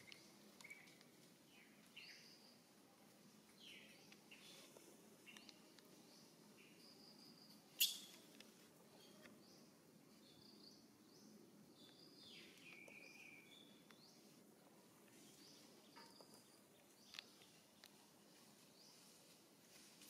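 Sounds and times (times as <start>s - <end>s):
faint high chirps: 6.6s - 8.3s.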